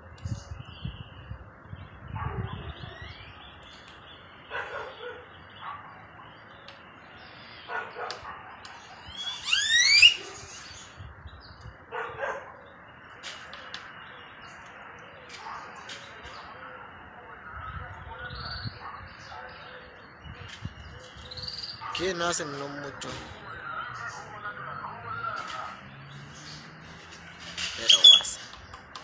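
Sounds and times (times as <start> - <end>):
short harsh bird calls: 9.0 - 11.0
quick series of rising bird calls: 9.1 - 10.3.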